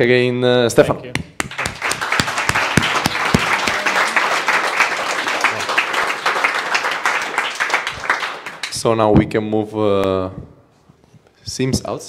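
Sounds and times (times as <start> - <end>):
audience applauding: 1.4 - 8.9.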